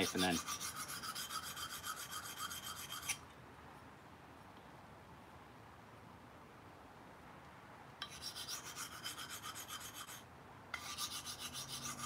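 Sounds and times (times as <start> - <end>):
knife scraping on sharpening stone: 0.0 - 3.2, 8.0 - 10.2, 10.8 - 12.0.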